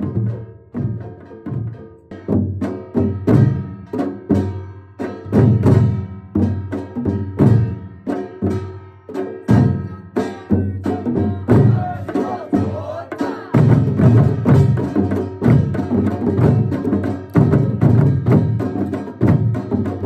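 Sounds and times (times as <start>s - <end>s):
barrel drum: 0.0s - 20.0s.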